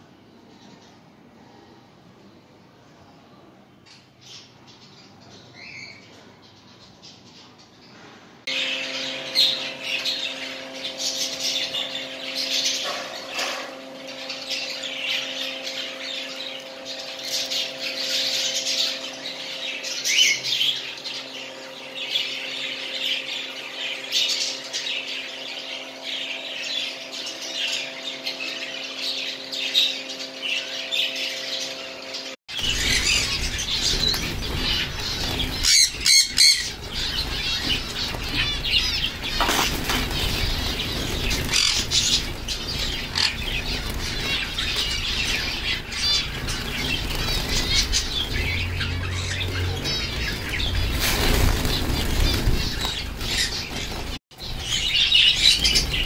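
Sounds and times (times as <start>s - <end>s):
steady hum: 8.0s - 56.0s
budgerigars chattering and squawking: 8.5s - 56.0s
finches chirping: 8.5s - 56.0s
wings fluttering: 32.6s - 56.0s.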